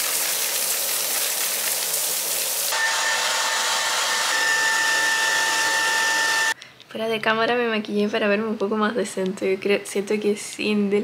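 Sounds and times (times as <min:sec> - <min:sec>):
shower water spraying: 0:00.0 - 0:02.8
hair dryer running: 0:02.7 - 0:06.6.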